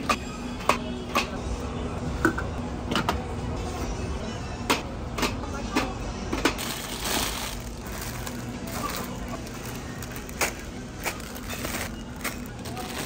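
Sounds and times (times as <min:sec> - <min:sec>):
low supermarket hum: 0:00.0 - 0:13.0
plastic packaging crinkling: 0:06.6 - 0:13.0.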